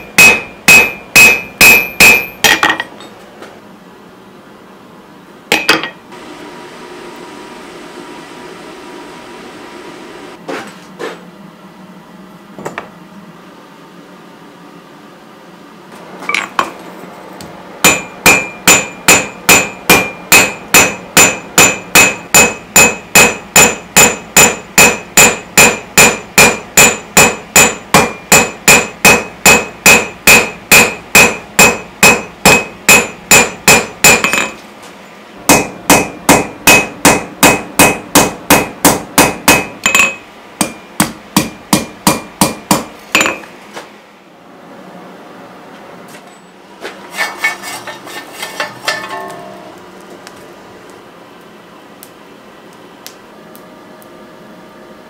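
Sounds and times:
hammer striking steel on anvil: 0.0 - 3.1, 5.5 - 6.0, 17.8 - 34.6, 35.5 - 43.5, 48.6 - 49.8.

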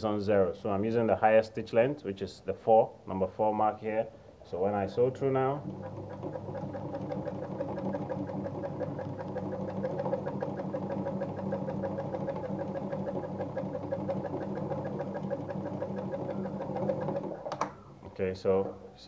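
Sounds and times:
sewing machine motor hum: 5.0 - 18.0
needle mechanism ticking: 5.6 - 17.7.

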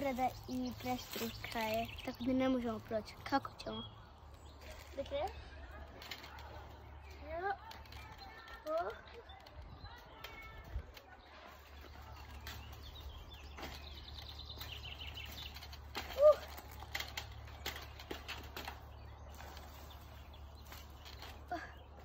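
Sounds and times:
birds singing: 0.0 - 22.0.

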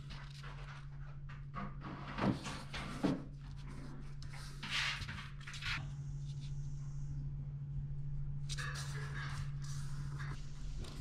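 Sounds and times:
paper rustle: 0.0 - 1.0
low hum: 3.4 - 11.0.

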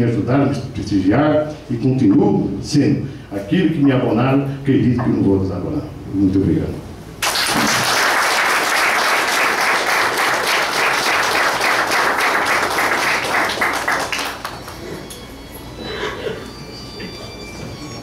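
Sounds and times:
audience applauding: 7.2 - 15.2.

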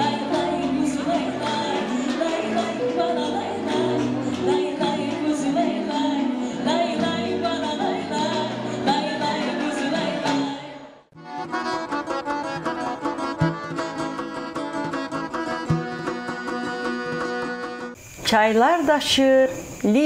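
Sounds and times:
plucked string folk tune: 0.0 - 10.5, 11.2 - 18.0
woman singing folk song: 0.0 - 10.7
accordion: 0.0 - 18.0.

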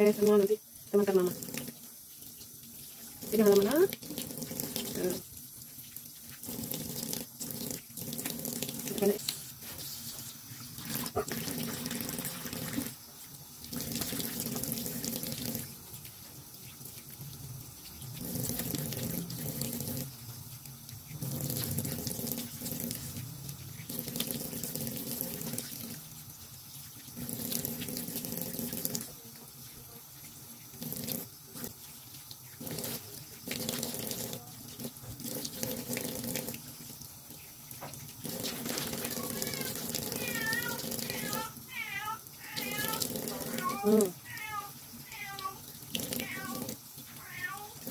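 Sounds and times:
tap water running into sink: 0.0 - 47.9
cat meowing: 39.2 - 45.6, 46.2 - 47.8.

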